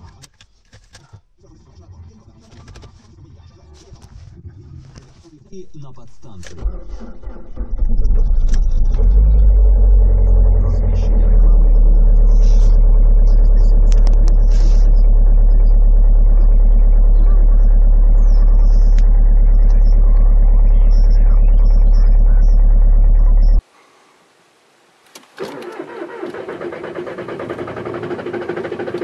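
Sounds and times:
diesel engine idling: 0:05.5 - 0:24.1, 0:25.4 - 0:29.0.

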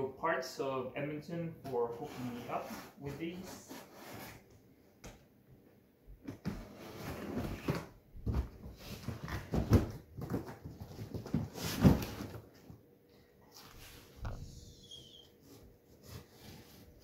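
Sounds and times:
cardboard scraping and rubbing: 0:02.0 - 0:04.5, 0:06.4 - 0:07.9, 0:13.6 - 0:17.0.

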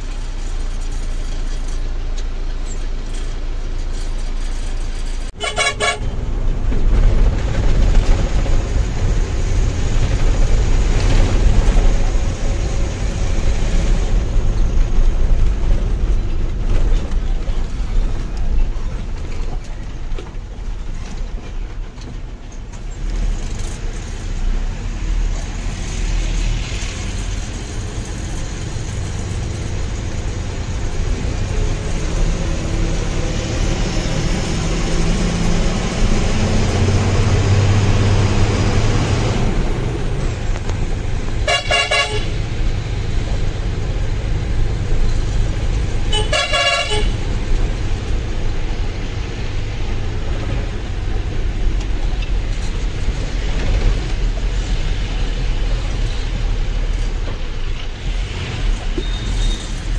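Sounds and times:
truck horn blasts: 0:05.4 - 0:06.2, 0:41.4 - 0:42.4, 0:46.1 - 0:47.2.

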